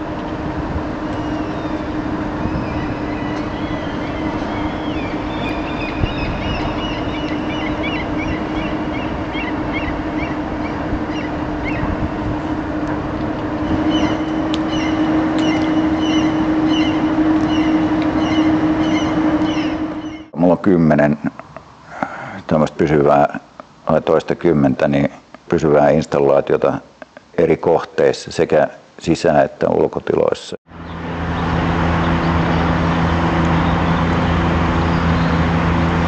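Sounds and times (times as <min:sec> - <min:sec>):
steady traffic noise: 0:00.0 - 0:29.0, 0:30.7 - 0:36.0
constant low hum: 0:00.0 - 0:36.0
birds chirping: 0:00.8 - 0:24.0, 0:30.7 - 0:36.0.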